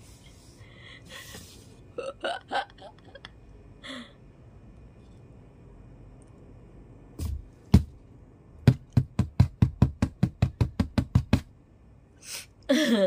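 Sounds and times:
knuckles tapping on cardboard box: 8.7 - 11.5.

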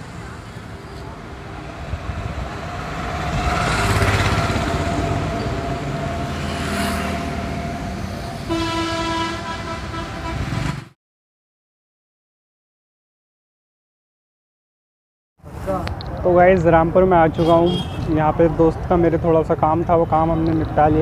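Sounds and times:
motorbikes passing: 0.0 - 11.0
road traffic: 0.0 - 11.0, 15.4 - 21.0
vehicle horn honking: 8.5 - 10.9, 17.3 - 18.1.

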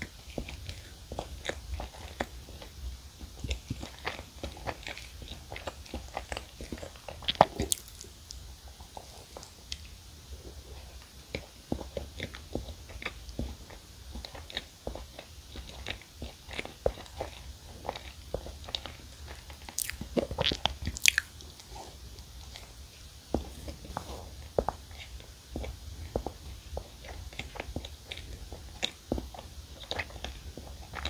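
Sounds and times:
biting and chewing cake: 0.0 - 31.0
sticky mouth clicks: 19.7 - 21.7.

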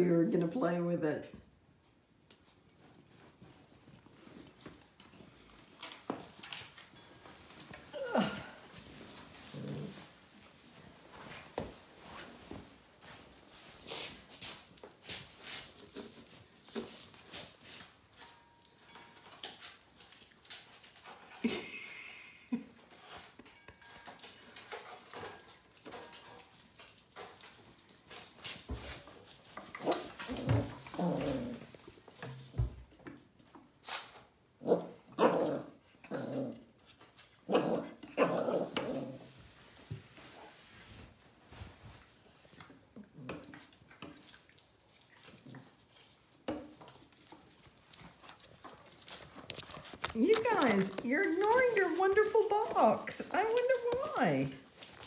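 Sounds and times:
puppies scuffling: 1.8 - 55.0
puppy whines: 7.9 - 8.6
puppy growls: 9.4 - 10.2, 29.8 - 31.7, 34.6 - 36.7, 37.5 - 39.3.

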